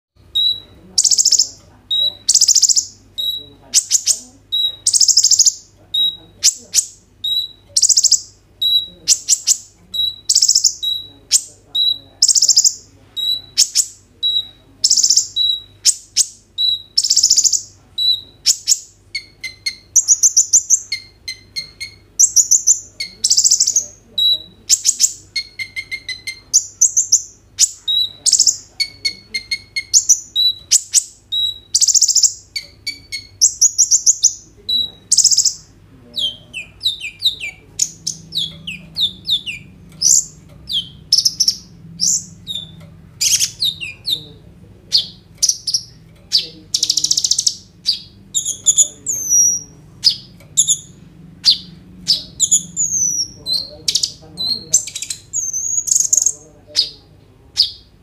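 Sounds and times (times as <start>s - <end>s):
sunbird chirping and trilling: 0.2s - 58.0s.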